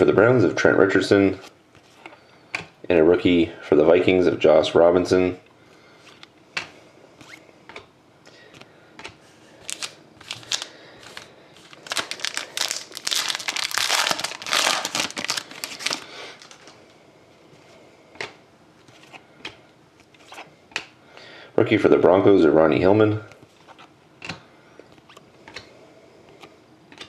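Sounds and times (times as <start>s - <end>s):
foil wrapper crinkling: 9.6s - 16.8s.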